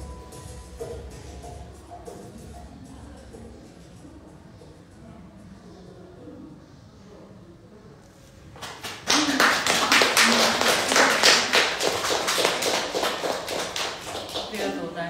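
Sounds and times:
people applauding: 8.6 - 15.0.

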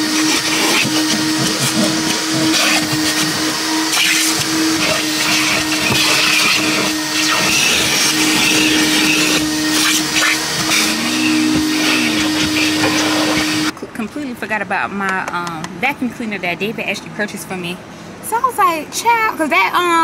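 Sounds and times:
vacuum nozzle sucking air: 0.0 - 13.7
vacuum humming: 0.0 - 13.8.

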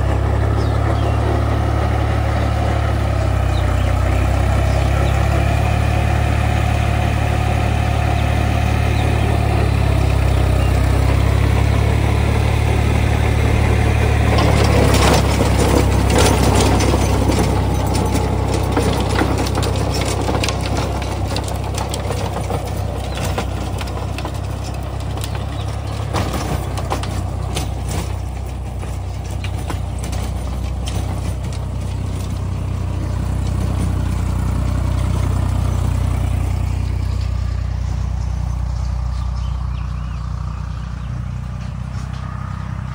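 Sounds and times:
tiller clattering through soil: 0.0 - 42.9
tractor diesel engine running: 0.0 - 42.9.

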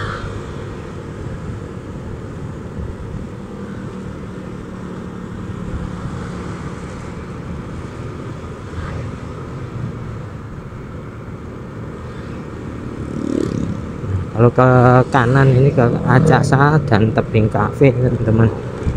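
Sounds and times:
wind and road noise: 0.0 - 18.9
scooter engine running: 12.5 - 14.5.

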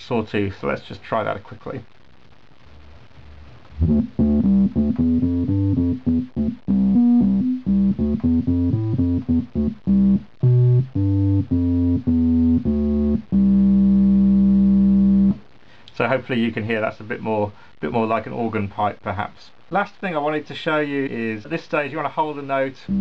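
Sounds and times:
synthesizer playing short notes: 3.8 - 15.4.

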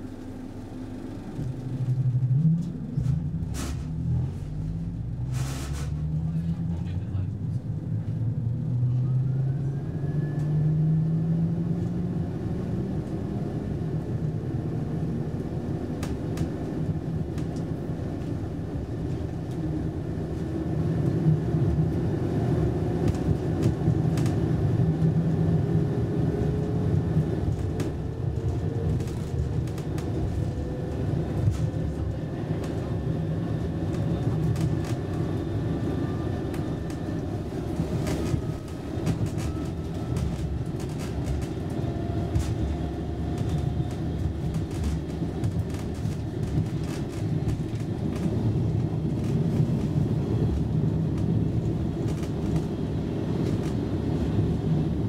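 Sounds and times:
train wheels rumbling: 11.9 - 55.0.

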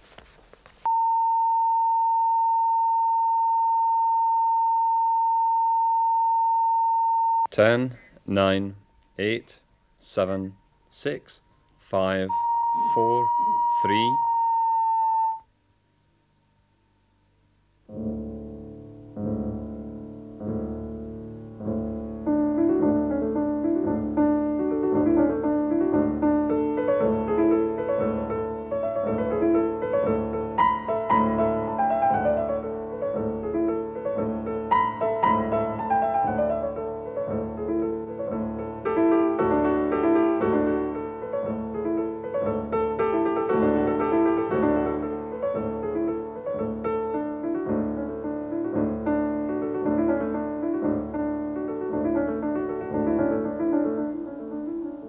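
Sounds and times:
solo piano music: 17.9 - 55.0.

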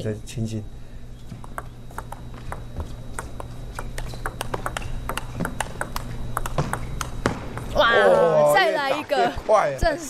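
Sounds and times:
table tennis ball clicking: 1.4 - 7.8.

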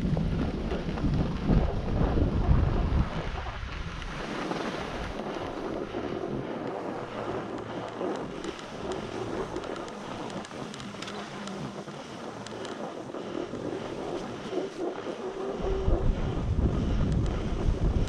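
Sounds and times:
wind rushing over microphone: 0.0 - 18.0
skis hissing over snow: 4.1 - 15.5.

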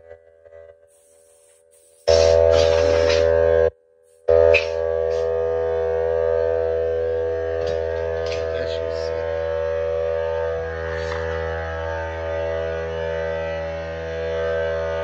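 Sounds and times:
pressure washer motor whine: 2.0 - 3.7, 4.3 - 15.0.

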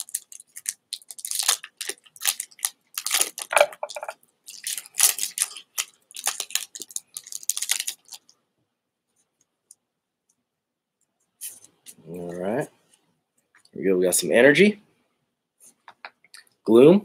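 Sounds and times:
foil wrapper crinkling: 0.0 - 8.3.

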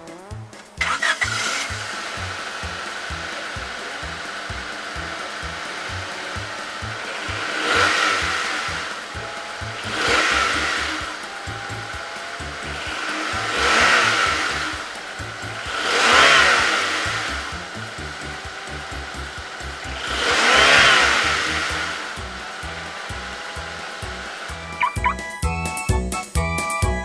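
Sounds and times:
background music with low beat: 0.0 - 27.0.

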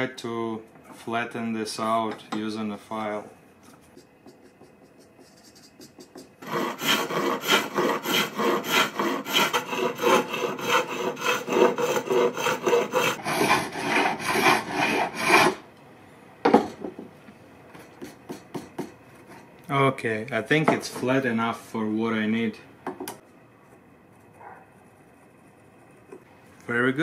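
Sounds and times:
hand file rasping on antler: 4.0 - 15.6.

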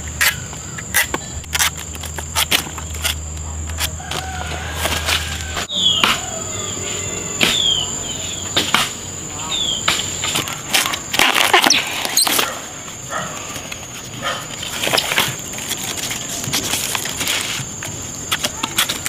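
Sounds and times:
high-pitched insect drone: 0.0 - 14.1
husks snapping and rustling: 8.5 - 19.0.

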